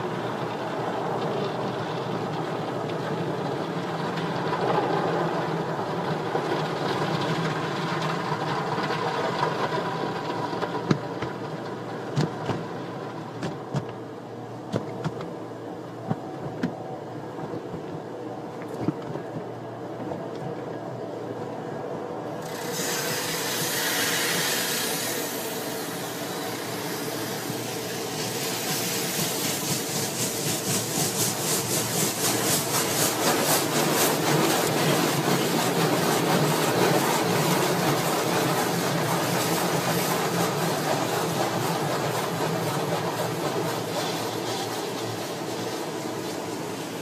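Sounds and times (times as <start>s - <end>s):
car wash brushes scrubbing: 22.5s - 47.0s
spraying water hiss: 22.5s - 47.0s.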